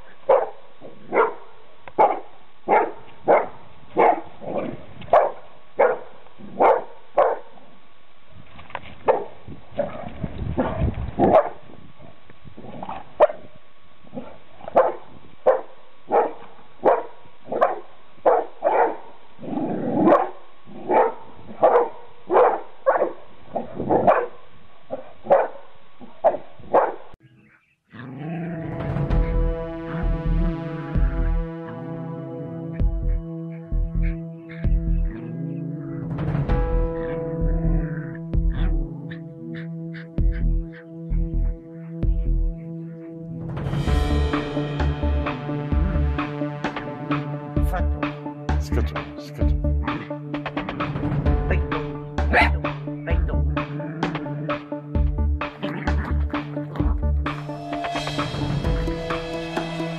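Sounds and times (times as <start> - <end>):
dog barking: 0.3 - 7.6, 9.0 - 9.9, 10.6 - 11.6, 12.9 - 13.5, 14.1 - 19.2, 19.9 - 27.2.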